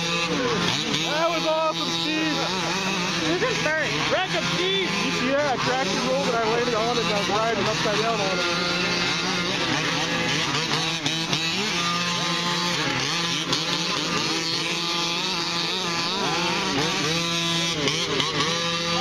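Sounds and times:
small two-stroke engines racing: 0.0 - 19.0
low drone: 1.8 - 19.0.

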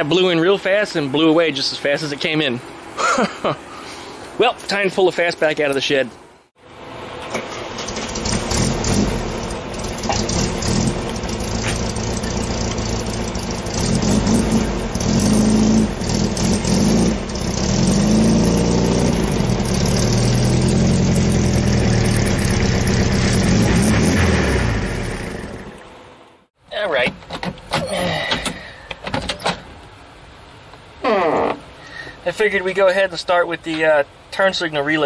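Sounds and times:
car engine revving: 6.7 - 26.0.

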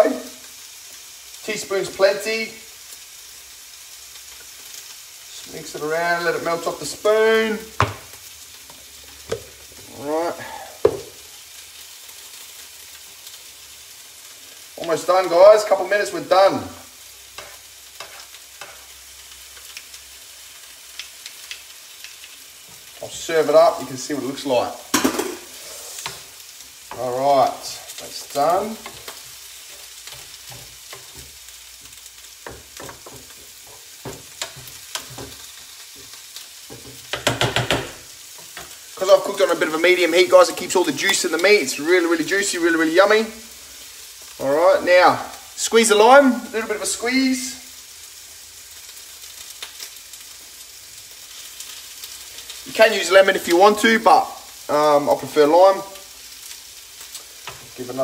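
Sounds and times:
meat sizzling in a frying pan: 0.0 - 58.0
spatula scraping and knocking pan: 7.8 - 9.9, 10.8 - 11.2, 17.4 - 18.9, 24.9 - 26.3, 28.7 - 38.8.

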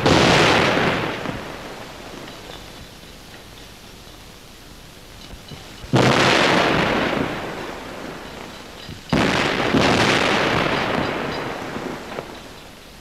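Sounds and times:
loud explosion blasts: 0.0 - 1.8, 5.9 - 7.7, 9.1 - 12.1.

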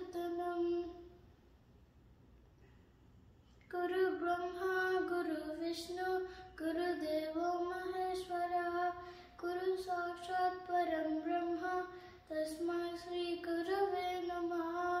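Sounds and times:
boy chanting: 0.0 - 1.1, 3.7 - 15.0.

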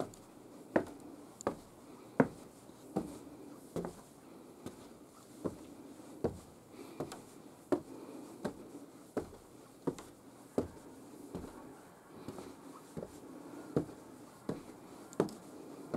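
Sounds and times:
footsteps on wooden stairs: 0.7 - 3.2, 3.8 - 4.0, 5.4 - 8.6, 9.2 - 11.6, 13.8 - 15.5.

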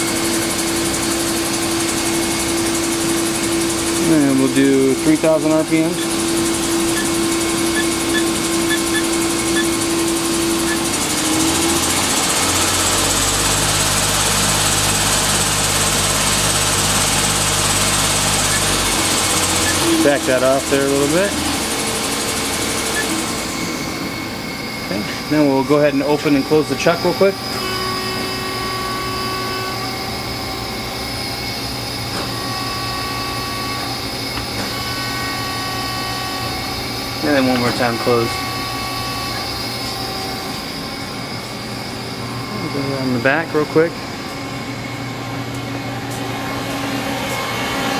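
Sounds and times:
lathe spindle hum and hiss: 0.0 - 47.9
lathe chuck clacking: 6.0 - 23.3.

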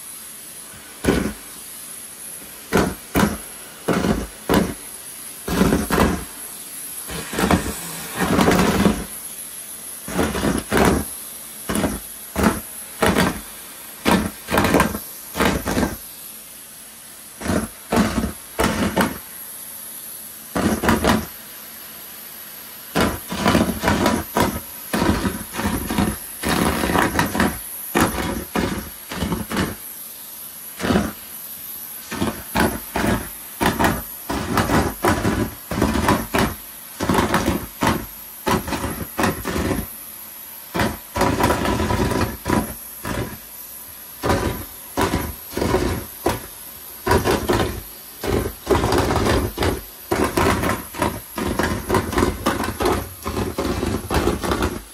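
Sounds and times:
balloons sucked into vacuum hose: 0.0 - 16.1, 22.8 - 30.0, 30.7 - 54.9
vacuum cleaner running: 0.0 - 54.9.

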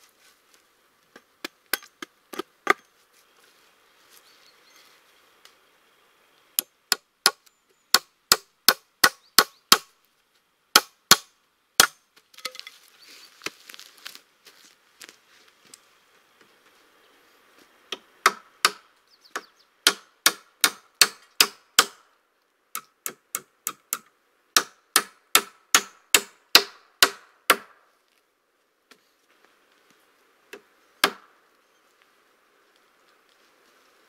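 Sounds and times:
hand tool striking timber: 10.8 - 12.7, 17.9 - 18.8, 19.9 - 22.0, 22.8 - 27.8.

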